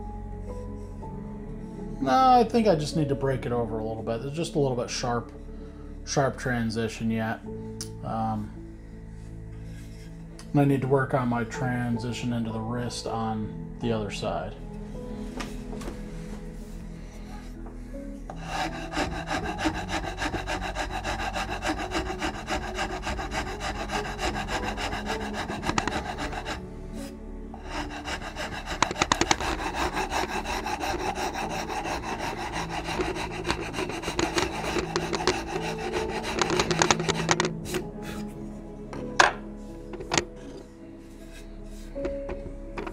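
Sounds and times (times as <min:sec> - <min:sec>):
soft background music: 0:00.0 - 0:42.9
file rasping on wood: 0:18.3 - 0:38.3.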